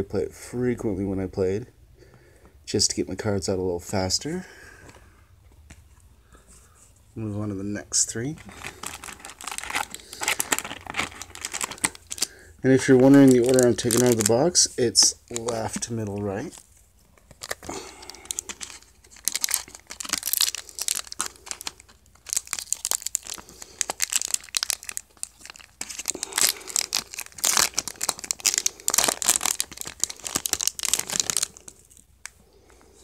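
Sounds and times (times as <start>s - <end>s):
plastic wrappers crinkling and tearing: 8.2s - 32.7s.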